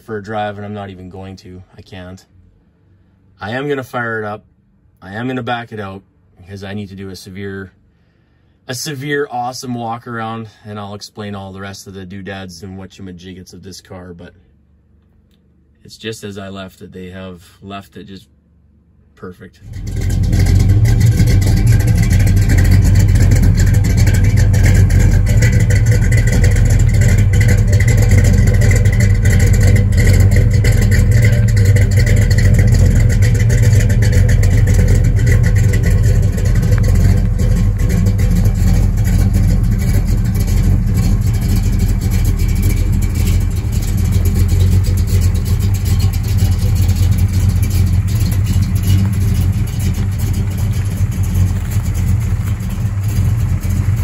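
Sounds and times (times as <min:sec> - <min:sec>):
car engine running: 0:19.6 - 0:54.0.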